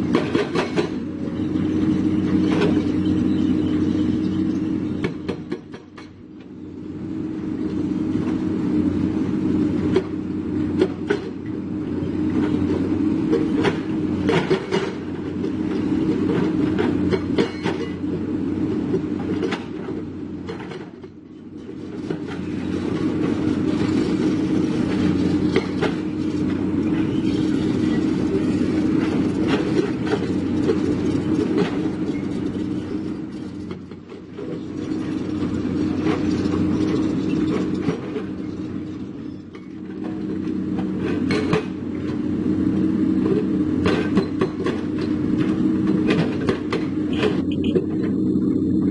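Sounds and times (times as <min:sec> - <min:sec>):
diesel engine humming: 0:00.0 - 0:48.9
metallic clanks and creaks: 0:00.1 - 0:06.2, 0:24.8 - 0:42.2, 0:43.2 - 0:48.2.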